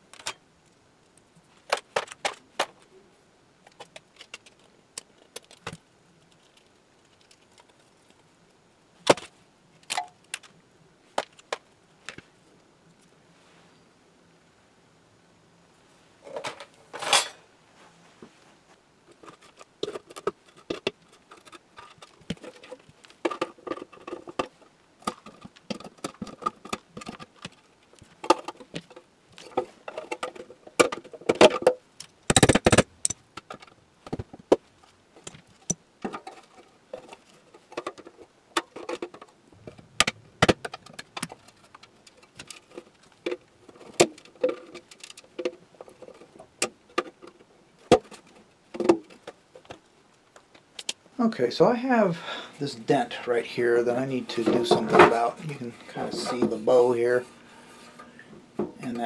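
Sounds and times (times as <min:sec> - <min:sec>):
tools being set down: 0:16.2 - 0:17.4.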